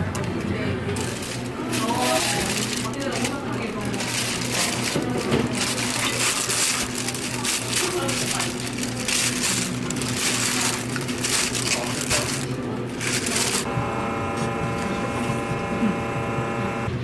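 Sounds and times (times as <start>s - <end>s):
steady multi-tone hum: 0.0s - 17.0s
plastic bag crinkling: 1.0s - 13.7s.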